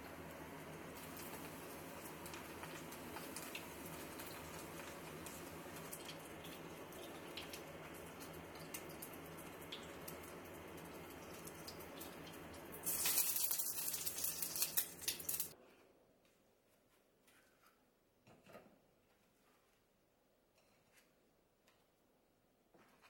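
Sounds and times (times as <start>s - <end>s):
hot oil sizzling: 0.0s - 15.6s
oil crackling and hissing: 0.9s - 15.6s.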